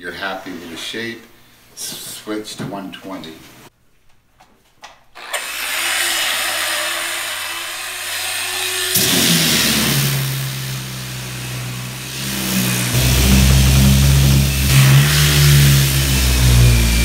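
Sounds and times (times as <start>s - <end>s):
orbital sander sanding wood: 5.7s - 17.0s.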